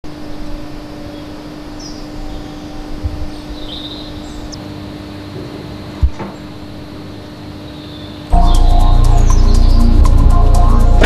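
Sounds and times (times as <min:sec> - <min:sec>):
machinery humming: 0:00.1 - 0:11.0.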